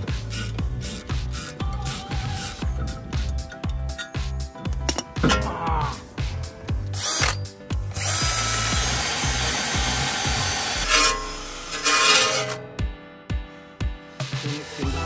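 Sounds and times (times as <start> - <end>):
background music with beat: 0.0 - 10.7, 12.6 - 15.0
drill wire brush scraping metal: 6.9 - 12.6.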